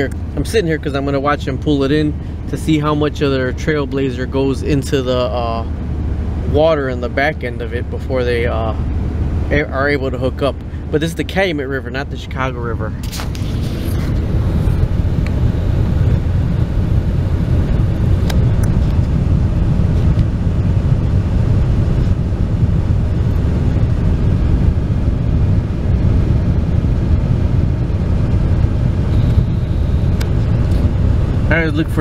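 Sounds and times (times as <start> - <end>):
vehicle engine idling: 0.0 - 32.0.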